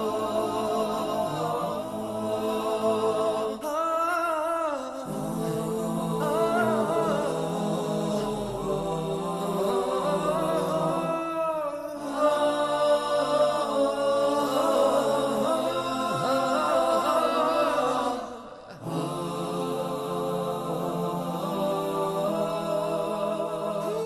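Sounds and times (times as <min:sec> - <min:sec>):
a cappella voices chanting: 0:00.0 - 0:24.0.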